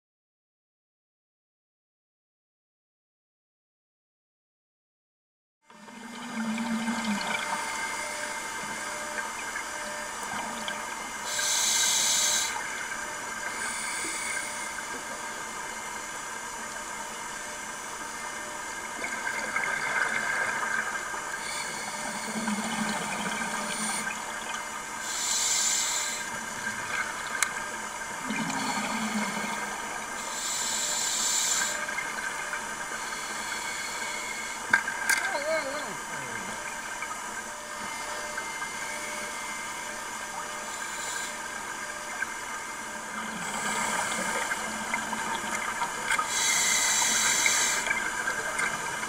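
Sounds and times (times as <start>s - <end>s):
steady underwater hiss: 5.8s - 49.0s
low gurgles: 12.3s - 25.1s.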